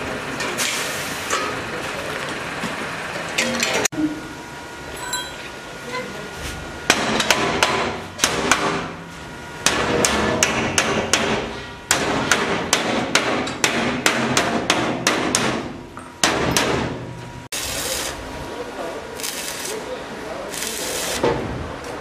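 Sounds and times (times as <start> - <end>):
hammer blows on sheet steel: 9.6 - 17.0.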